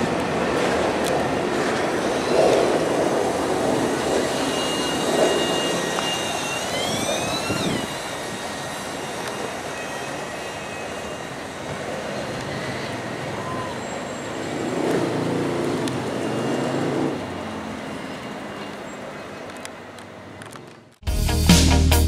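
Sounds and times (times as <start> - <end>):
freight train rolling on rails: 0.0 - 20.9
high-pitched squeal: 1.6 - 18.8.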